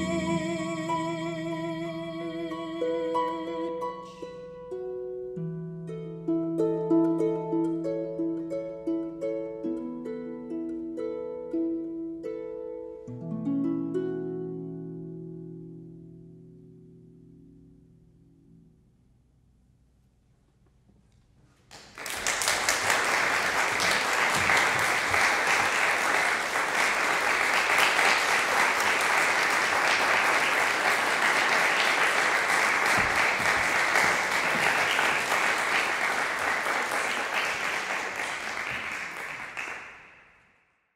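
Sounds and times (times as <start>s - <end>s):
audience applauding: 21.7s - 40.2s.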